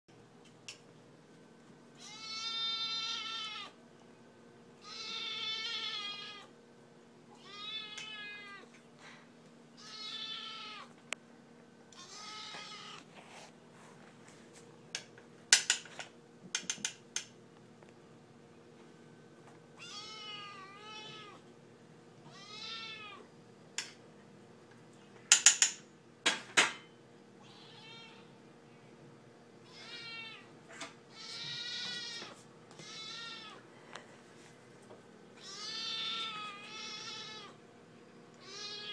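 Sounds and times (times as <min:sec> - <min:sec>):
kitten meowing loudly: 0:02.0 - 0:03.8, 0:04.8 - 0:06.5, 0:07.4 - 0:08.7, 0:09.8 - 0:10.9, 0:12.0 - 0:13.0, 0:19.8 - 0:21.4, 0:27.4 - 0:28.3, 0:29.6 - 0:30.5, 0:35.4 - 0:37.6, 0:38.4 - 0:38.9.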